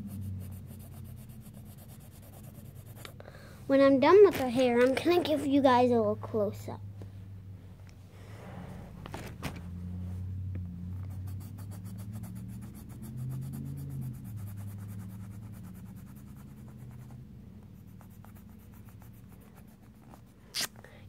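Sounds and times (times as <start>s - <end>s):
crayon scratching on paper: 0.0s - 3.2s, 11.0s - 17.2s, 17.8s - 20.4s.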